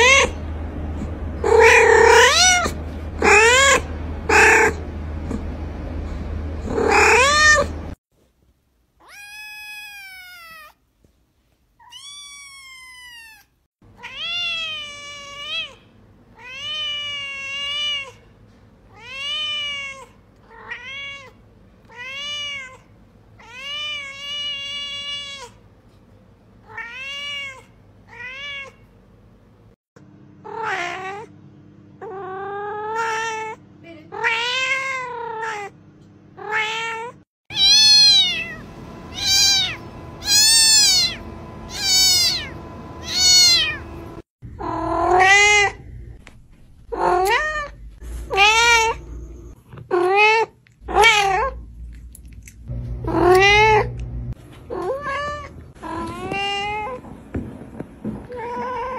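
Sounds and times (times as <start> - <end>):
cats meowing: 0.0 - 0.4, 1.4 - 4.8, 6.7 - 7.8, 11.8 - 15.8, 36.4 - 44.0, 44.6 - 45.8, 46.9 - 51.6, 53.0 - 54.0, 54.7 - 57.1, 58.2 - 58.9.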